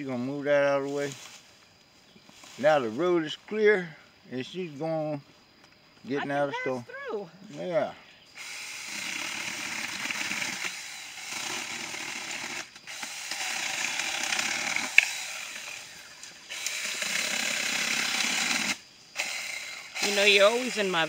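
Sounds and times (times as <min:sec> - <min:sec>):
electric chainsaw cutting branches: 0:08.4 - 0:21.0.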